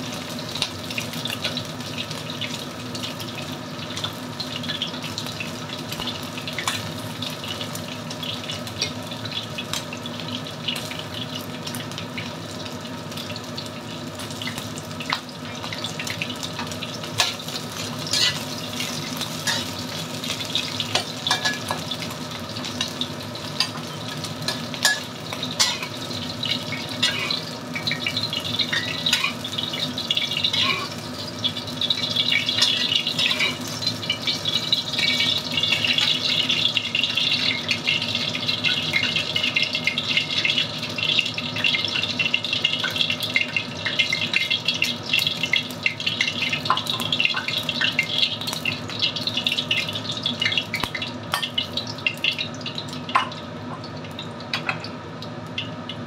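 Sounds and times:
chicken sizzling in oil: 0:00.0 - 0:56.0
metal spatula clicking and scraping: 0:18.1 - 0:18.4, 0:25.6 - 0:26.0, 0:27.0 - 0:27.5, 0:32.6 - 0:33.7.

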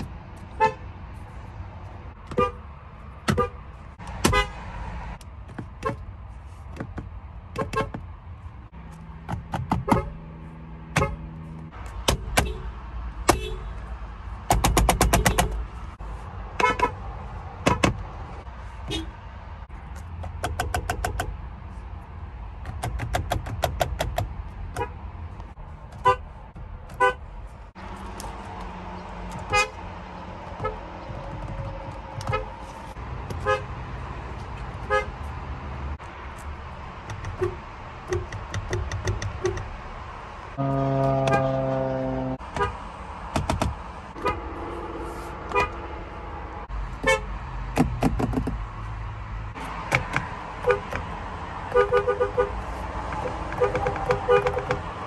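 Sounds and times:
car horns honking: 0:00.5 - 0:00.9, 0:02.2 - 0:04.6, 0:07.5 - 0:08.0, 0:09.7 - 0:10.2, 0:10.9 - 0:11.3, 0:12.1 - 0:13.8, 0:14.9 - 0:15.7, 0:16.6 - 0:17.0, 0:18.8 - 0:19.2, 0:24.7 - 0:25.0, 0:25.9 - 0:27.3, 0:29.4 - 0:29.8, 0:30.5 - 0:32.7, 0:33.3 - 0:33.8, 0:34.8 - 0:35.3, 0:40.6 - 0:42.9, 0:44.1 - 0:47.4, 0:50.0 - 0:51.1, 0:51.7 - 0:55.0.

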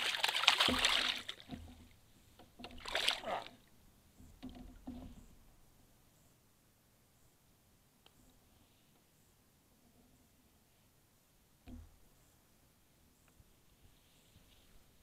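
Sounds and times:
fish thrashing and splashing: 0:00.0 - 0:01.8, 0:02.7 - 0:03.4.

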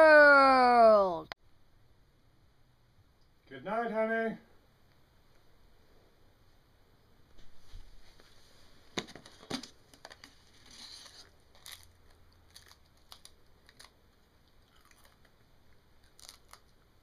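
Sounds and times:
crinkling rustles: 0:07.4 - 0:15.3, 0:16.0 - 0:16.8.

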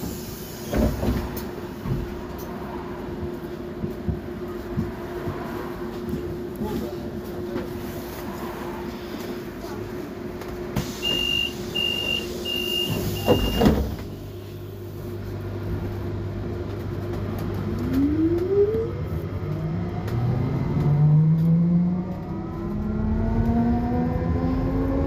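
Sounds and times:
high beeps: 0:11.0 - 0:13.7.

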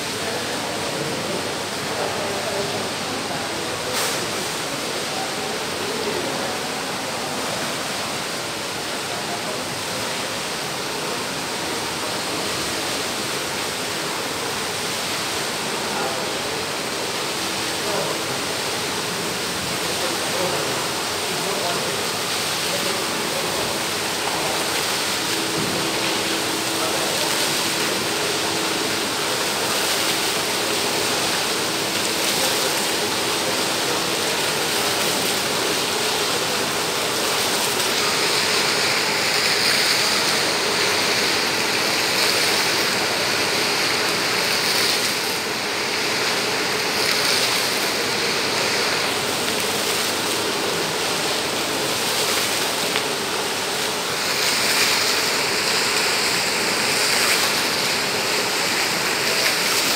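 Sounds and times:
fountain water splashing into pool: 0:00.0 - 0:59.9.

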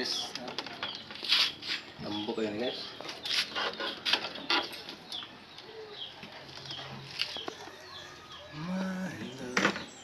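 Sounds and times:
bird chirping: 0:00.0 - 0:10.0
plastic bottles crinkling and clacking: 0:00.2 - 0:01.6.

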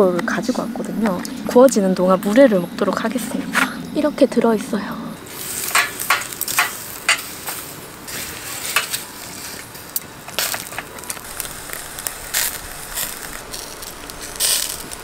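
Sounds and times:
chicken sizzling on a grill: 0:05.3 - 0:15.0
metal tongs clicking on grate: 0:05.7 - 0:07.3.

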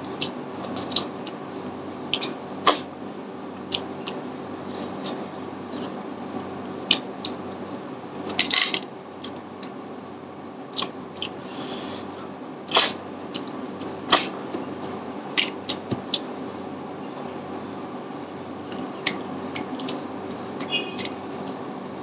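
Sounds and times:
steady low hum: 0:00.0 - 0:22.0
mouth clicks and smacks: 0:02.1 - 0:02.9, 0:03.7 - 0:04.2, 0:09.2 - 0:09.4, 0:10.7 - 0:11.8, 0:12.7 - 0:16.3, 0:18.7 - 0:21.6.

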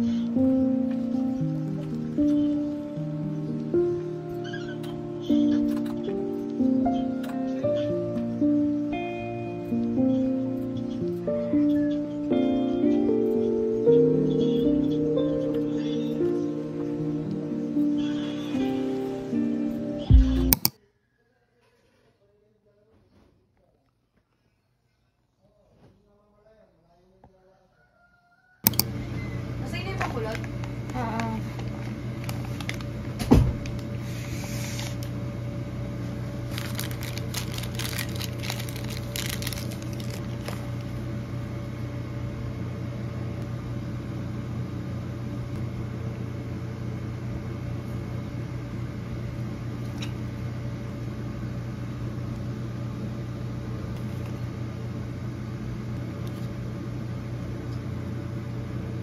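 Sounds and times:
appliance humming: 0:00.0 - 0:20.8, 0:28.6 - 0:59.0
paper bag rustling: 0:31.0 - 0:33.0, 0:36.4 - 0:40.9.

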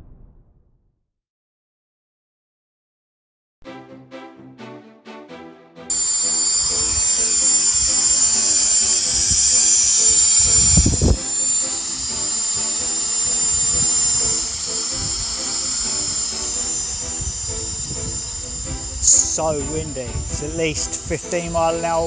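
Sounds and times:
quadcopter motors whining: 0:05.9 - 0:22.0
wind rumbling on microphone: 0:09.2 - 0:11.3, 0:13.5 - 0:22.0
quiet music: 0:10.9 - 0:22.0.

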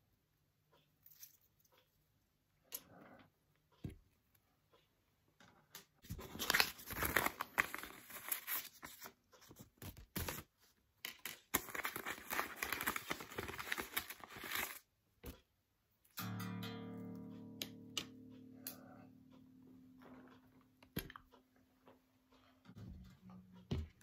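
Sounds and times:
paper envelope crinkling and tearing: 0:06.1 - 0:10.5, 0:11.1 - 0:14.9.

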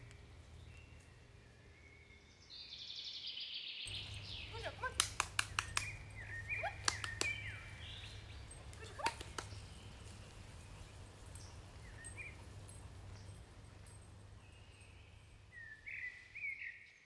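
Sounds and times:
short chirping bird calls: 0:02.7 - 0:17.0
sharp clicks and snaps: 0:04.8 - 0:07.5, 0:08.7 - 0:09.7.

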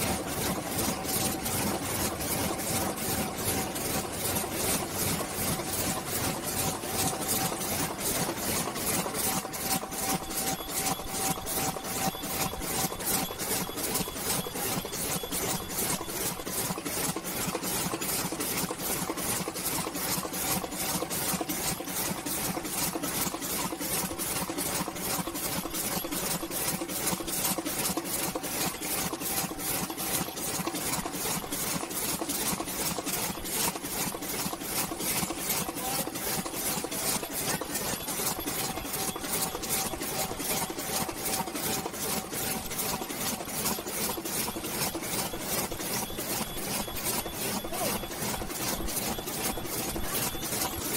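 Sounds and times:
machine clatter: 0:00.0 - 0:50.9
steady machine hum: 0:32.7 - 0:50.9.

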